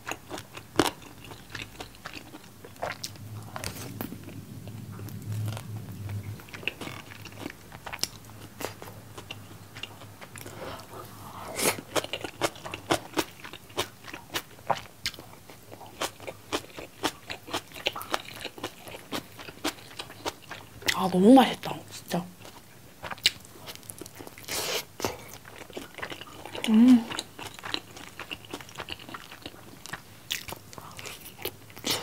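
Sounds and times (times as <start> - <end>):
chewing fried chicken: 0.0 - 21.1, 22.4 - 32.0.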